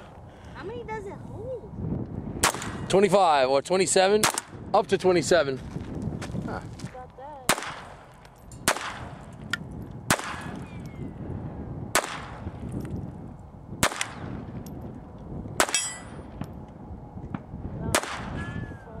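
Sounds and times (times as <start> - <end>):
handgun shots: 2.4 - 2.9, 7.5 - 9.3, 10.1 - 10.6, 12.0 - 12.4, 13.8 - 14.2, 15.6 - 16.0, 17.9 - 18.4
bullet clanging on steel plate: 15.6 - 16.2.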